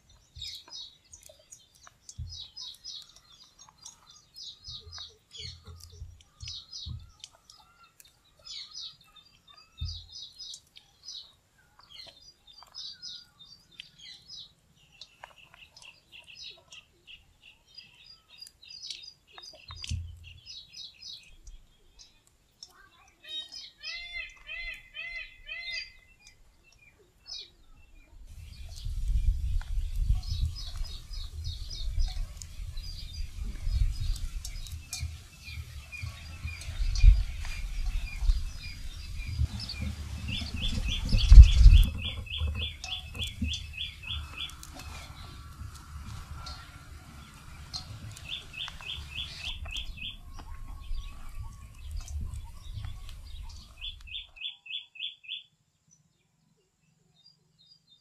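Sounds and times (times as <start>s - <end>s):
small birds chirping: 0.0s - 58.0s
low rumble with thumps: 28.3s - 53.9s.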